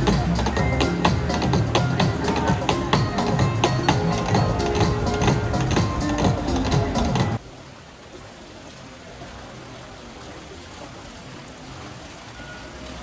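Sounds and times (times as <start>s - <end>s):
street performer music and tapping: 0.0s - 7.4s
open-air ambient hiss: 0.0s - 13.0s.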